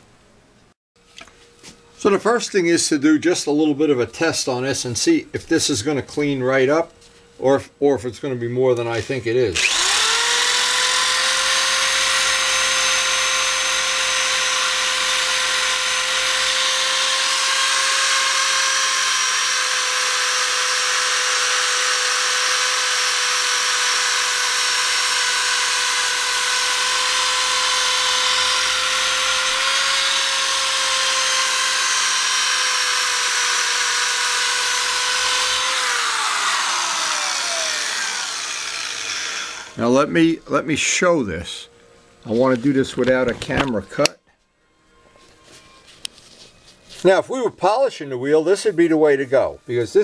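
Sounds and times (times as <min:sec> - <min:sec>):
electric sander whining: 0:09.6 - 0:39.9.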